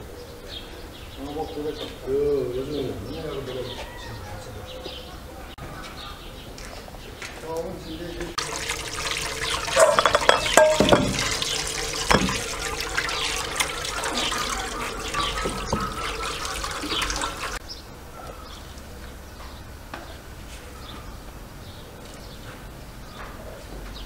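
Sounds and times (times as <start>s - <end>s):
running water: 8.2s - 17.6s
knocks against an enamel bowl: 9.8s - 12.5s.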